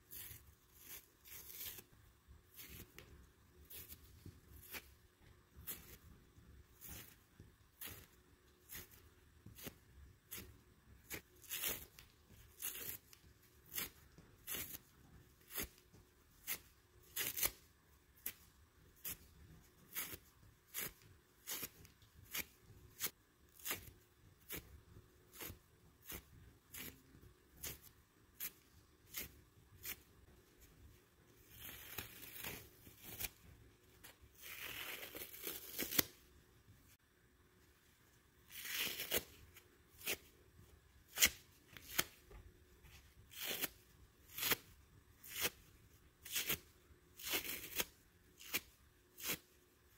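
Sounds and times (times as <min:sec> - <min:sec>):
sponge tearing: 0:00.0 - 0:01.9, 0:09.6 - 0:15.8, 0:16.4 - 0:19.3, 0:19.9 - 0:24.7, 0:25.3 - 0:27.0, 0:31.4 - 0:33.4, 0:34.3 - 0:36.2, 0:38.5 - 0:40.3, 0:43.3 - 0:49.6.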